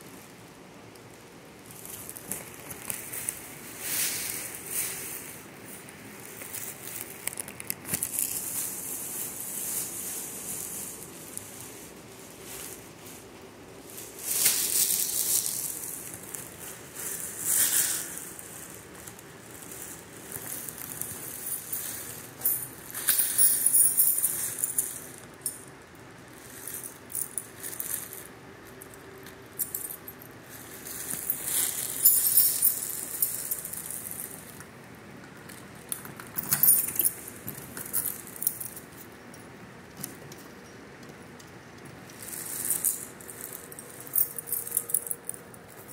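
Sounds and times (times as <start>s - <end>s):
faint steady hum: 0.0s - 45.9s
light high-pitched jingling and rattling: 19.7s - 25.6s, 26.4s - 34.6s, 35.9s - 39.5s.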